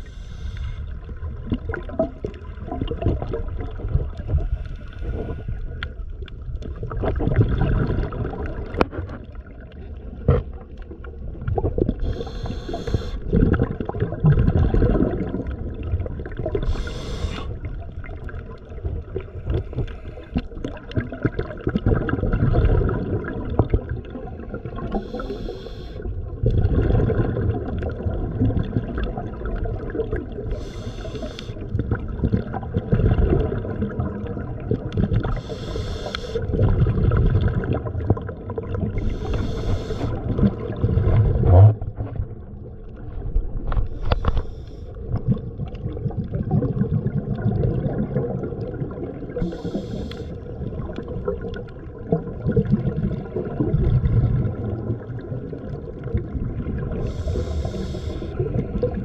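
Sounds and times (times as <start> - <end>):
hissing breath: 0.0 - 0.9, 12.0 - 13.2, 16.6 - 17.6, 25.0 - 26.0, 30.6 - 31.6, 35.4 - 36.4, 39.0 - 40.2, 49.4 - 50.4, 57.0 - 58.4
water churning against microphone: 0.0 - 59.0.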